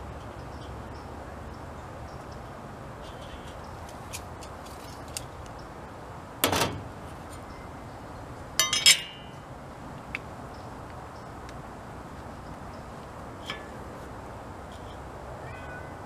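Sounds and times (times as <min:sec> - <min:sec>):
metal tools clattering: 0:08.6 - 0:09.4
ringing metal clinks: 0:08.6 - 0:09.4.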